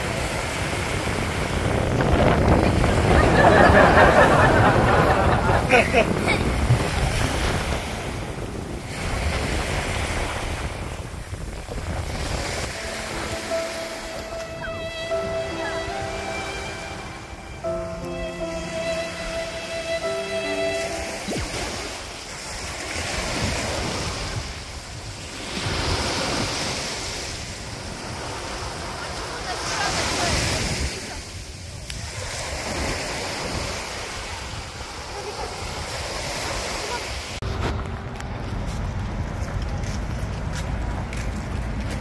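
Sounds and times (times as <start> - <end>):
wind buffeting microphone: 0.0 - 12.9
waves breaking on sandy beach: 0.0 - 38.8.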